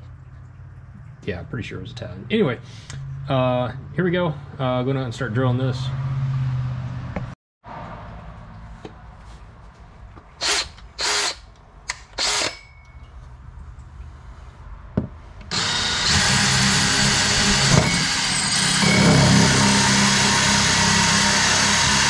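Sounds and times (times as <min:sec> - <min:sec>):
cordless drill cutting fiberglass: 0:10.4 - 0:11.5, 0:12.2 - 0:12.6, 0:15.5 - 0:22.0.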